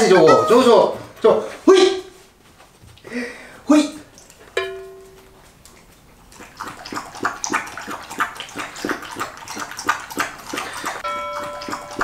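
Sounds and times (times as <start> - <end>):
dog lapping from metal bowl: 5.4 - 12.0.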